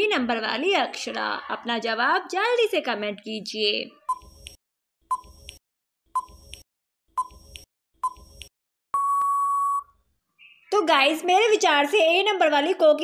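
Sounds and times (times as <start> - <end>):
short timer beeps: 9.0 - 9.9
long steady beep: 9.0 - 10.0.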